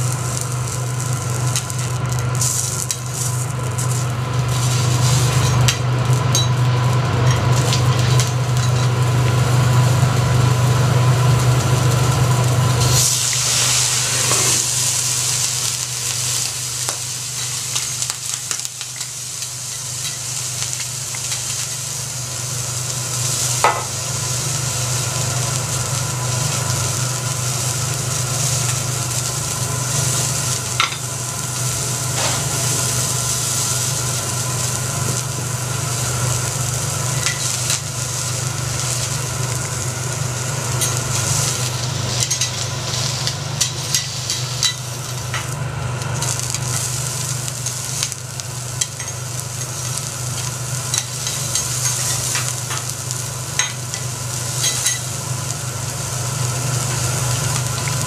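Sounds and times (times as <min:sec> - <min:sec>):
food sizzling on griddle: 0:00.0 - 0:58.0.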